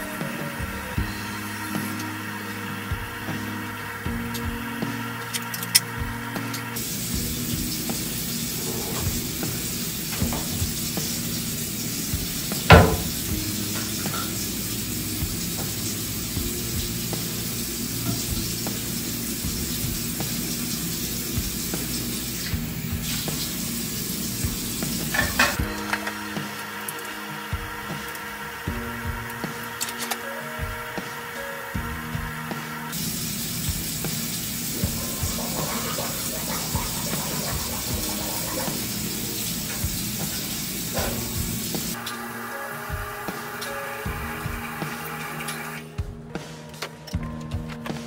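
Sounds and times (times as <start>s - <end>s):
faucet running into sink: 6.8s - 27.0s, 32.9s - 42.0s
bottles clicking and knocking: 12.5s - 13.2s, 25.0s - 27.0s.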